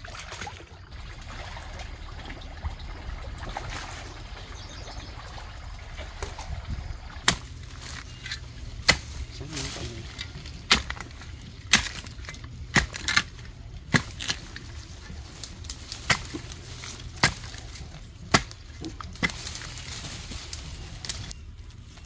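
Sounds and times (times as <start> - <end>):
digging pole striking earth: 7.2 - 21.4.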